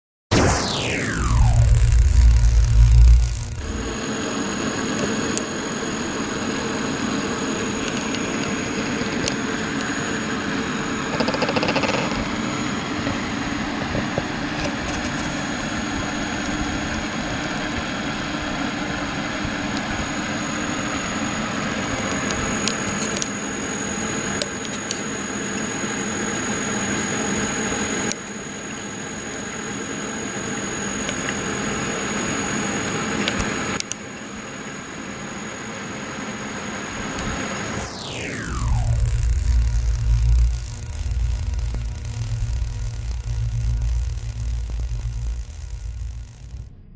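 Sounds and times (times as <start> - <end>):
servo motor hum and whine: 0.3 - 4.2, 37.8 - 46.9.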